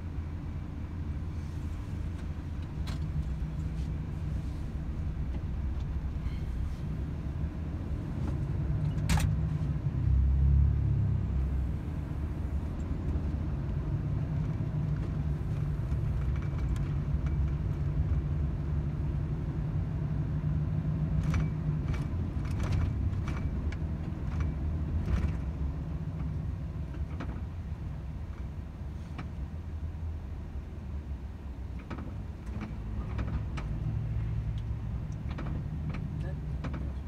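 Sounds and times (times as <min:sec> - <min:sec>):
truck engine and road rumble: 0:00.0 - 0:37.0
sharp clicks and knocks: 0:31.8 - 0:33.8, 0:34.6 - 0:37.0.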